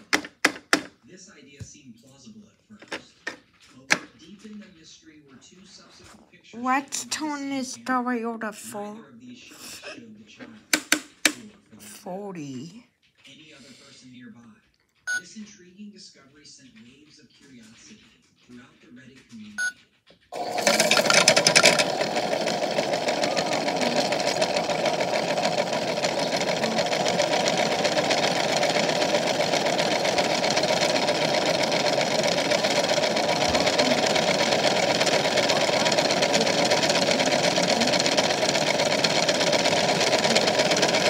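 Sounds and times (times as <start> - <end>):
rock rattling in plastic drum: 20.4 - 41.0
small electric motor running: 20.4 - 41.0.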